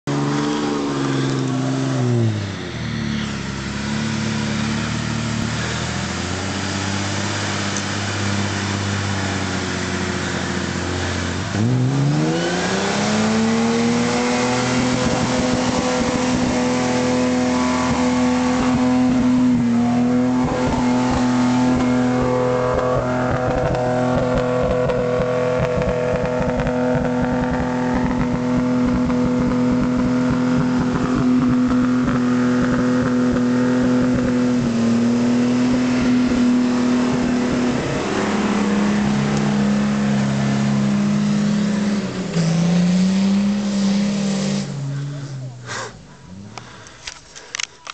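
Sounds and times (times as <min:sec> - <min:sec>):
engine revving under load: 0:00.0 - 0:47.0
rough crackle: 0:17.6 - 0:34.4, 0:44.9 - 0:47.9.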